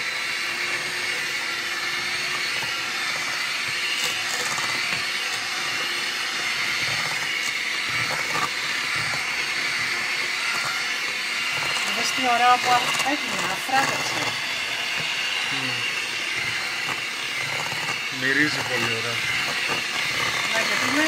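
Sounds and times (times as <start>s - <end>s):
electric hand mixer running: 0.0s - 21.0s.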